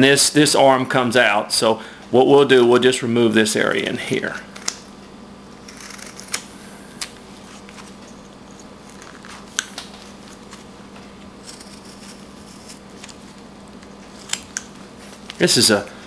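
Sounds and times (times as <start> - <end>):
faint steady hum: 0.0 - 16.0
knife whittling wood: 5.6 - 6.5, 11.4 - 15.4
knife blade scraping wood: 5.7 - 6.4, 11.4 - 13.4.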